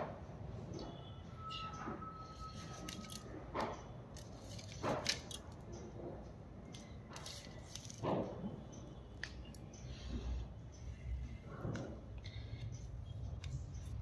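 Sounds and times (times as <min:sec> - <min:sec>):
objects knocking and rustling: 0:07.6 - 0:08.6.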